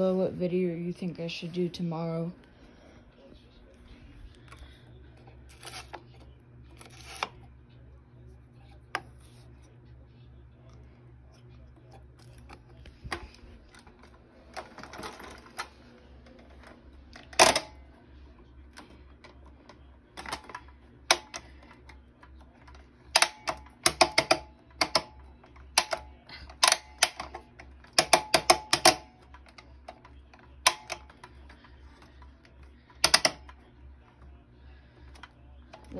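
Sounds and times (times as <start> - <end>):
clicks and taps on vacuum head: 22.6 - 33.6.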